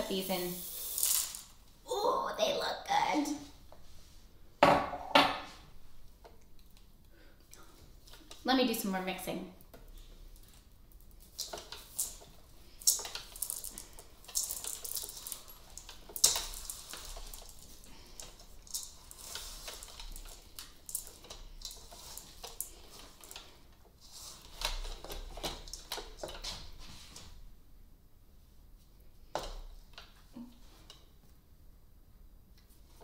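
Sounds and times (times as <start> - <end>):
dough squishing and scraping: 9.7 - 27.4.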